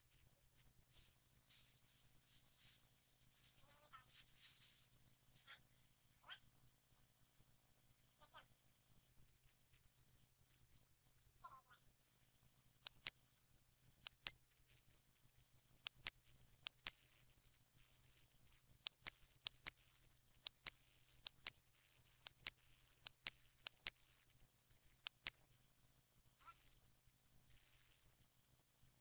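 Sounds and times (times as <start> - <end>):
faint low hum: 0.0 - 29.0
mouse button clicking: 18.8 - 24.2.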